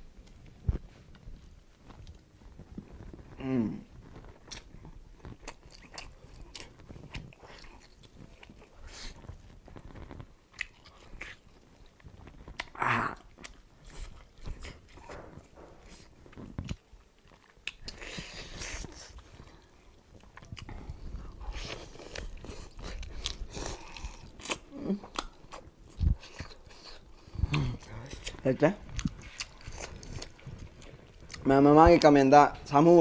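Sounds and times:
person humming: 3.4 - 3.9
chewing and biting meat: 4.3 - 32.0.

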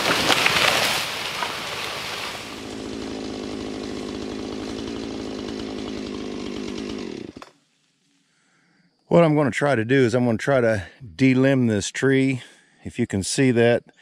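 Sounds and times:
tree crashing through branches: 0.0 - 7.3
chainsaw idling: 0.0 - 7.6.

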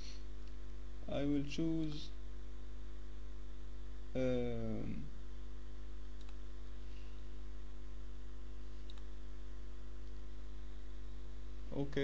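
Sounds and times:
electrical mains hum: 0.0 - 12.0
computer mouse clicks: 6.2 - 6.8, 8.8 - 9.1, 10.0 - 10.3.

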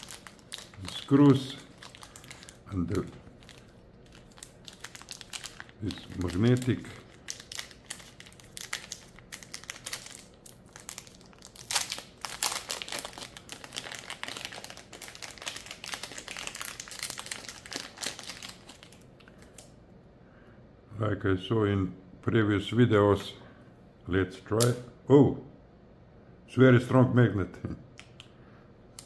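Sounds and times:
plastic wrapping crinkling: 0.0 - 19.8.

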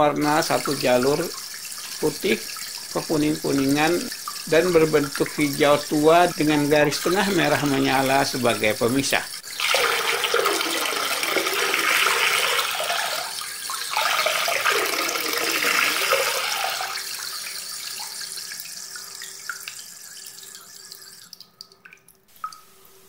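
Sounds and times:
running water splashing: 0.0 - 23.0.

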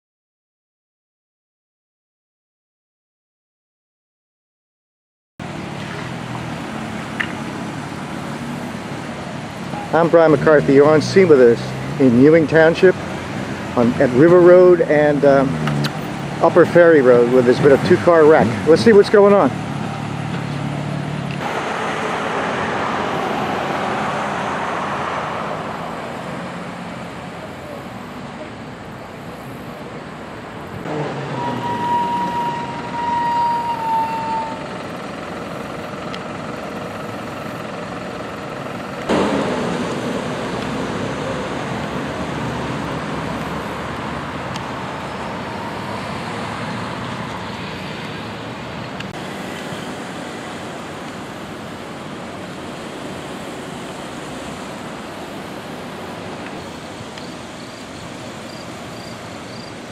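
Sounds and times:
vehicles driving past: 5.4 - 59.9
steady high tone: 21.4 - 27.8, 30.9 - 35.9, 43.3 - 47.9.

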